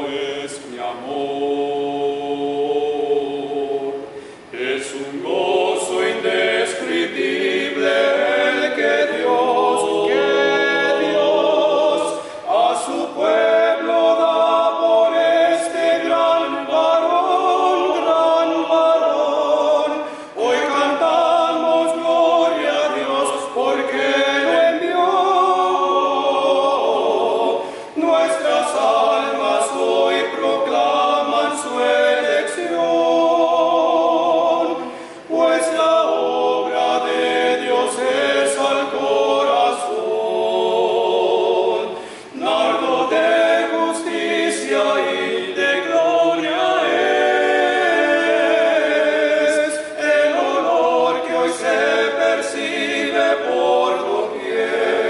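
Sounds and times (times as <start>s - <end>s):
male choir singing a cappella: 0.0s - 55.0s
singers breathing: 4.1s - 4.5s, 12.1s - 12.5s, 20.0s - 20.4s, 27.6s - 28.0s, 34.8s - 35.3s, 41.9s - 42.4s.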